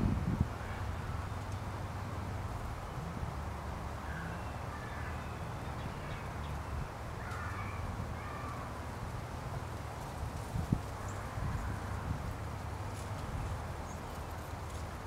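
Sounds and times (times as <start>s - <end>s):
distant birds calling: 3.9s - 8.8s.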